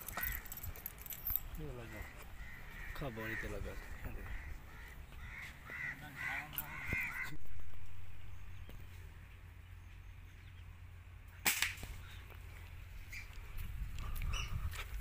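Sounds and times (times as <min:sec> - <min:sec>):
crows cawing: 0:00.0 - 0:00.7, 0:01.7 - 0:08.0
air rifle shot: 0:11.4 - 0:12.0.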